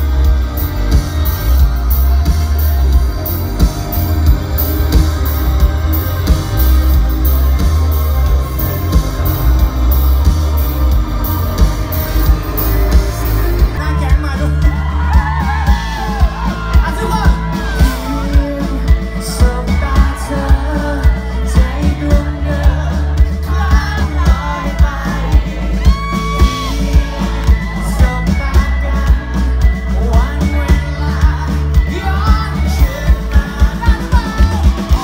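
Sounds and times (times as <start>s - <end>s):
drums pounding beat: 0.0s - 35.0s
electric guitar: 0.0s - 35.0s
man singing: 7.4s - 35.0s.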